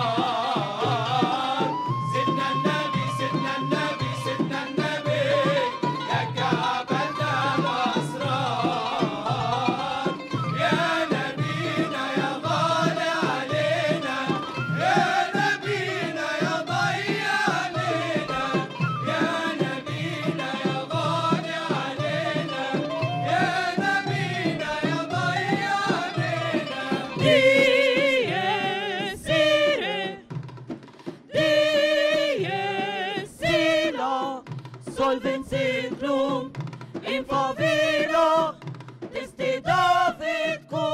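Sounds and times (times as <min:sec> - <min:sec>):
choir singing a religious chant: 0:00.0 - 0:30.3, 0:31.2 - 0:40.9
frame drums beating: 0:00.0 - 0:40.9.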